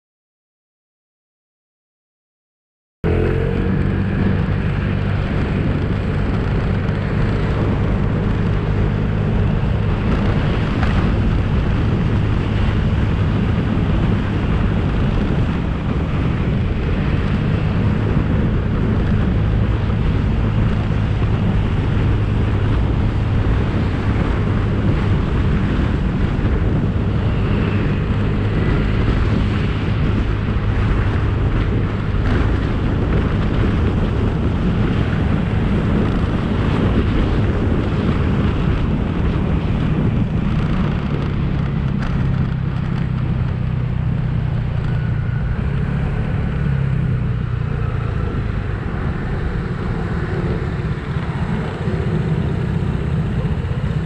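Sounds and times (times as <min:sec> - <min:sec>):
scooter engine running: 0:03.0 - 0:54.0
wind on microphone: 0:03.0 - 0:54.0.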